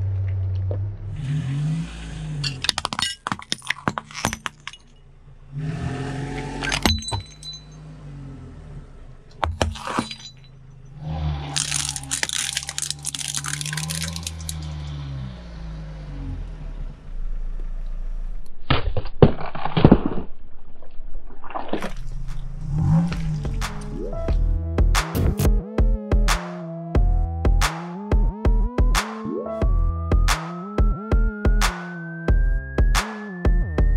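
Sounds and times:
car engine idling: 0.0s - 5.6s, 6.3s - 12.9s
baubles crunching under tyre: 2.4s - 4.9s, 9.4s - 10.6s, 11.3s - 14.7s, 19.2s - 24.0s.

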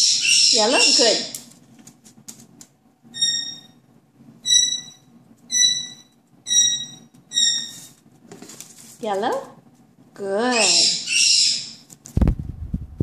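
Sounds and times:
parrot squeaking: 0.0s - 1.4s, 3.1s - 3.8s, 4.4s - 7.9s, 10.5s - 11.8s.

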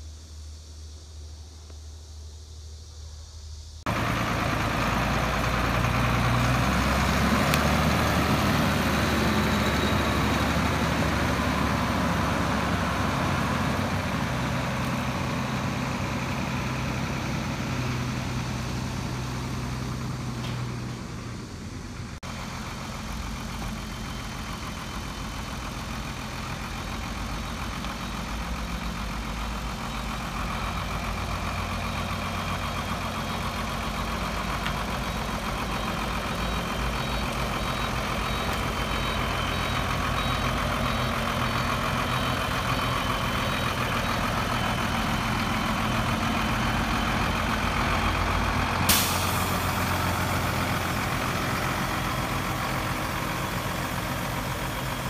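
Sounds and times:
truck diesel engine running: 3.5s - 55.0s
short sharp hiss: 48.9s - 49.7s.

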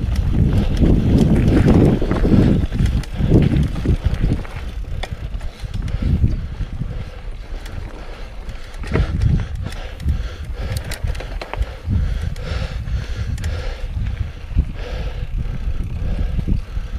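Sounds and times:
tyres rumbling on dirt: 0.0s - 12.4s
light clicks and rattles: 0.0s - 12.6s
wind buffeting microphone: 0.0s - 16.9s.

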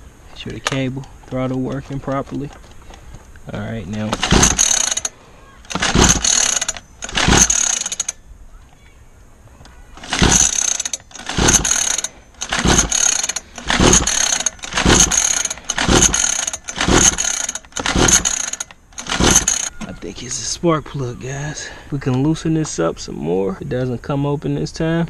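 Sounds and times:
recoil starter cranking: 3.9s - 8.2s, 10.0s - 19.8s.

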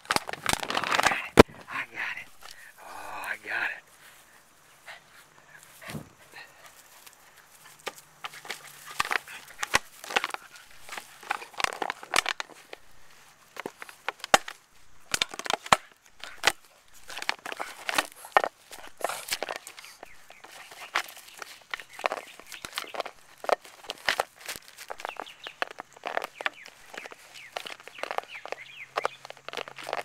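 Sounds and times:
dog chewing plastic bottle: 0.0s - 1.5s, 7.7s - 12.8s, 13.6s - 30.0s
plastic clicking and cracking: 0.0s - 1.7s, 7.8s - 12.9s, 13.5s - 30.0s.

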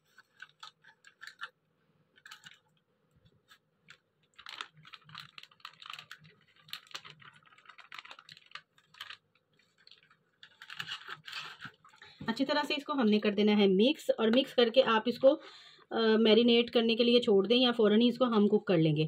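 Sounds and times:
plastic packet rustling: 0.0s - 12.5s.

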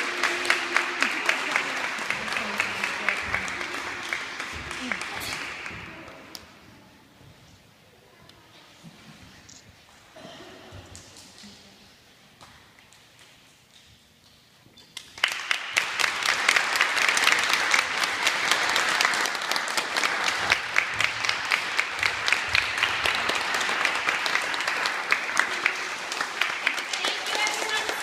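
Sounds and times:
audience applauding: 0.0s - 6.2s, 15.1s - 28.0s.

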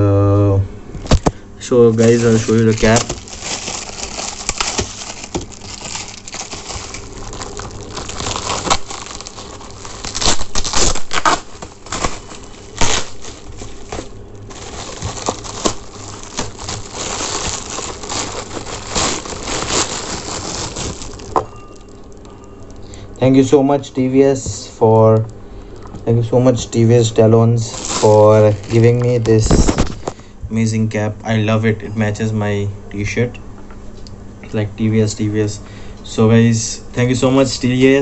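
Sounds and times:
packaging rustling and crinkling: 1.1s - 22.3s, 27.6s - 30.2s
sharp crackles and clicks: 2.1s - 22.9s.

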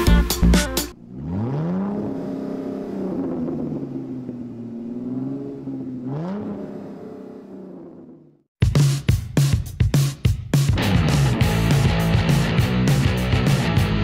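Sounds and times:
music: 0.0s - 1.0s, 8.6s - 14.0s
car engine revving: 0.9s - 8.5s.

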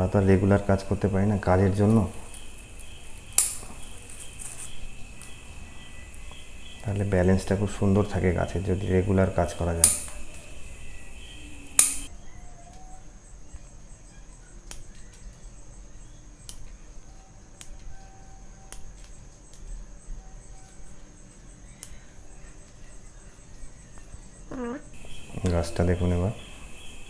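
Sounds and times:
high-pitched whine: 0.0s - 12.3s
scissors snipping twigs: 1.8s - 5.4s, 9.8s - 10.5s, 11.8s - 12.1s, 17.6s - 17.9s.

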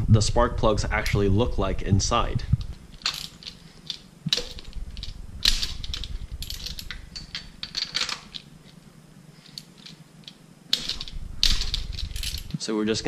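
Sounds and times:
metal clinks: 2.9s - 8.8s, 9.4s - 12.6s.

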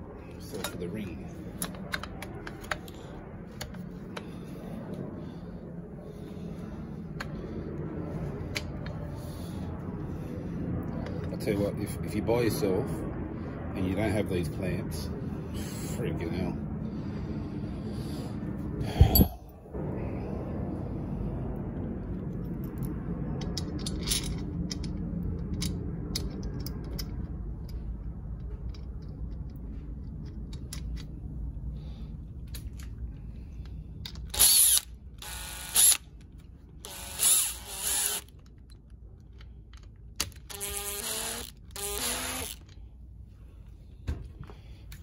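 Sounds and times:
low rumbling: 0.0s - 39.9s
cordless drill whirring: 34.3s - 36.0s, 36.8s - 38.3s, 40.4s - 42.7s.

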